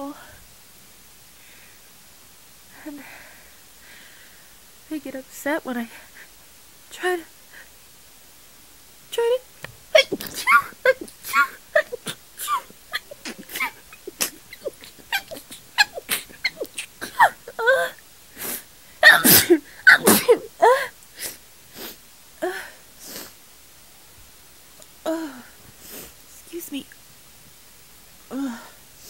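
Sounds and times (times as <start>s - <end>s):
woman sneezing: 10.0s - 21.4s.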